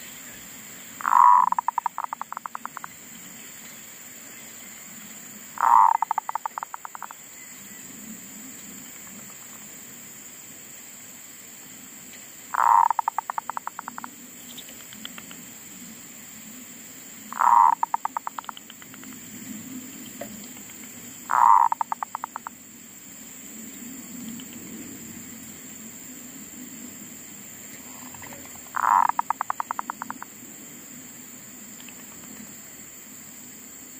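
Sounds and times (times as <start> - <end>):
dove cooing: 1.0 - 2.8.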